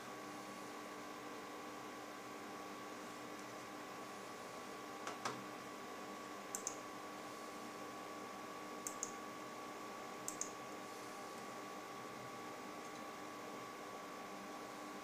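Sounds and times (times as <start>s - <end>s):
faint hum with high tone: 0.0s - 15.0s
computer mouse clicks: 6.5s - 6.8s, 8.8s - 9.2s, 10.3s - 10.6s.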